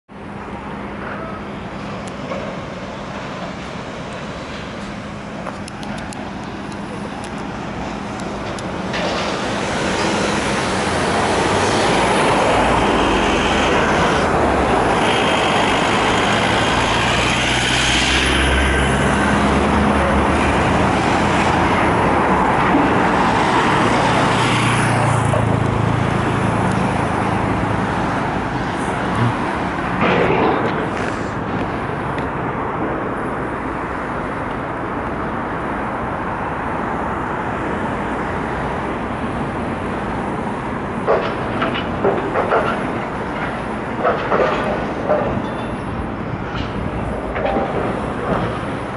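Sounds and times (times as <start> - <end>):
road traffic passing: 0.1 - 48.9
lorry engine rumble: 0.3 - 36.0.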